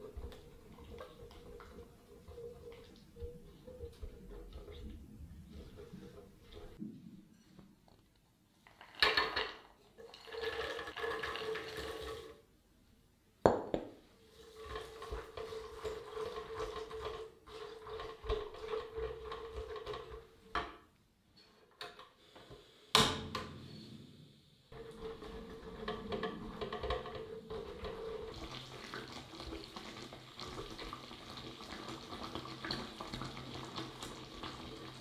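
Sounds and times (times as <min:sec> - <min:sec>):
spatula stirring sticky caramel: 0:00.0 - 0:06.8, 0:14.2 - 0:20.5, 0:24.7 - 0:35.0.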